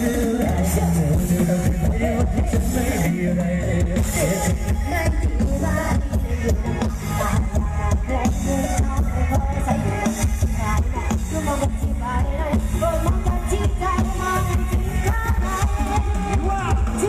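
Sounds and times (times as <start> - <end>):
loud music with heavy bass: 0.0 - 17.0.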